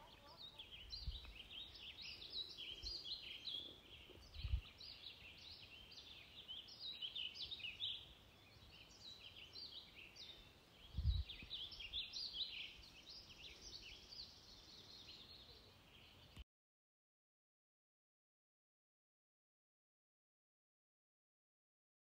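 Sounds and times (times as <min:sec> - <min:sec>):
small birds chirping: 0:00.0 - 0:16.4.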